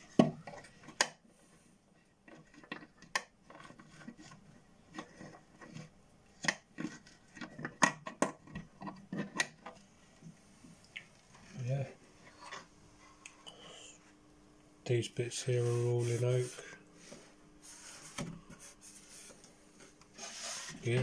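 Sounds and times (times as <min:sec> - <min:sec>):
rubbing: 0:15.4 - 0:21.0.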